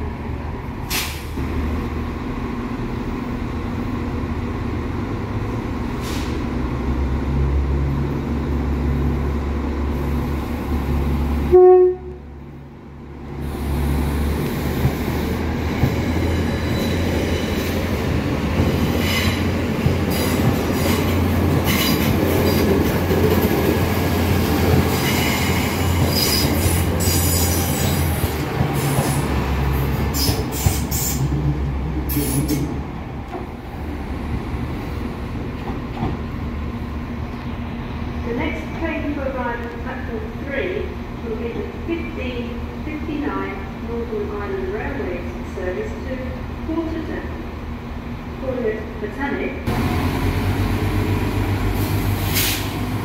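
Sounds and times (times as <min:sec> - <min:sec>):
train horn blast: 0:11.5 - 0:12.2
rail clicks: 0:14.6 - 0:33.6
diesel train engine running: 0:49.6 - 0:53.0.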